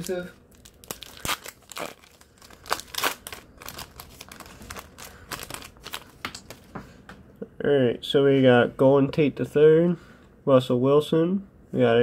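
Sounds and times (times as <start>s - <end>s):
foil wrapper crinkling: 0.0s - 6.7s.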